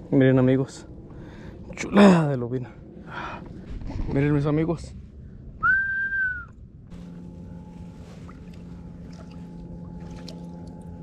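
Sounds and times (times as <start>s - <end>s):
low engine drone: 0.0s - 11.0s
short high whistle: 5.6s - 6.6s.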